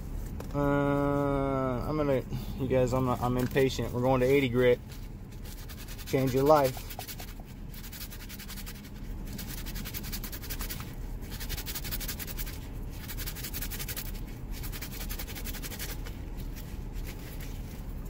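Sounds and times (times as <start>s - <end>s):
sandpaper sanding hard plastic: 5.4s - 16.1s.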